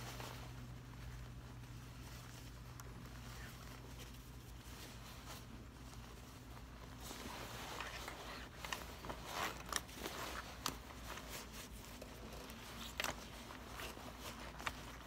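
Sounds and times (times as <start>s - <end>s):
leather jacket rustling: 0.0s - 15.0s
low steady hum: 0.0s - 15.0s.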